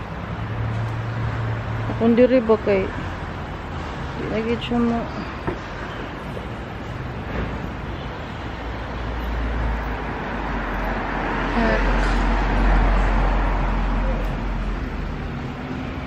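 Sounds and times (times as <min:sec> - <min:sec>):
vehicle passing with deep rumble: 0:08.9 - 0:16.0.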